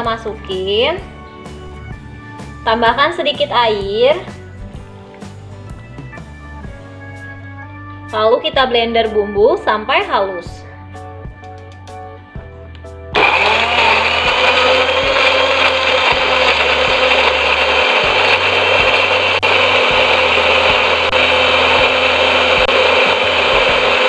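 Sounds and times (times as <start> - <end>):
electric blender running: 13.1 - 24.0.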